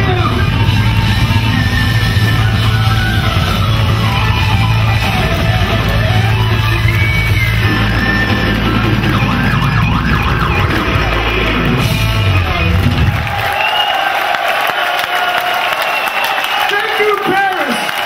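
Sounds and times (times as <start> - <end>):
electric guitar bent notes: 0.0 - 13.4
live rock band playing: 0.0 - 13.7.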